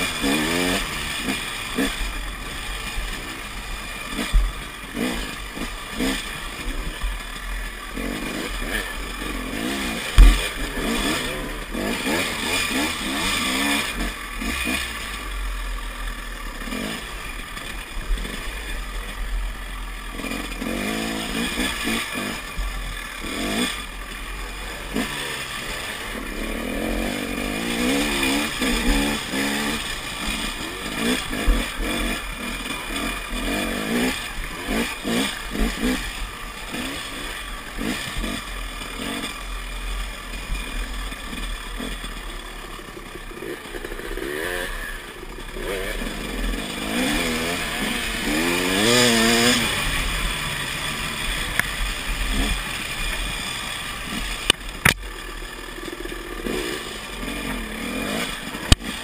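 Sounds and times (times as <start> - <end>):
dirt bike engine revving: 0.0 - 59.0
sharp knocks: 10.2 - 10.5.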